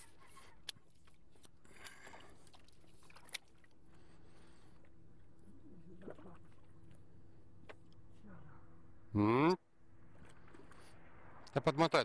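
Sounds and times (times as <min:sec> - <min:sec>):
faint water splashing: 0:00.0 - 0:08.8.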